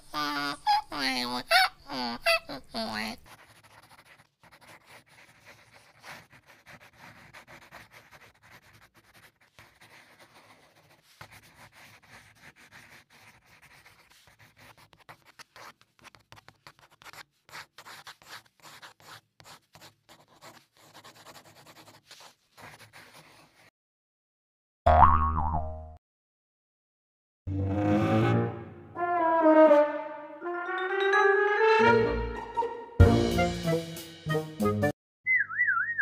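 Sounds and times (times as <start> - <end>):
pen scratching on paper: 2.9 - 23.7.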